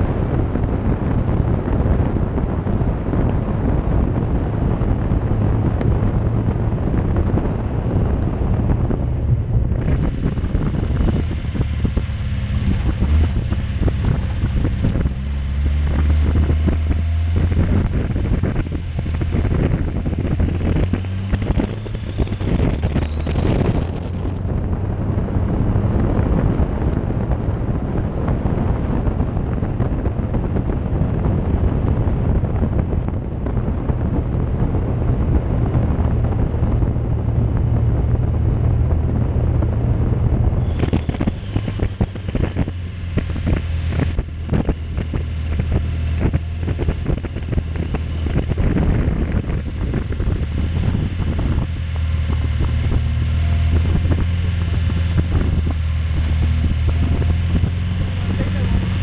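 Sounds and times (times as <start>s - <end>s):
car engine running: 0.0s - 59.0s
wind noise on microphone: 0.0s - 59.0s.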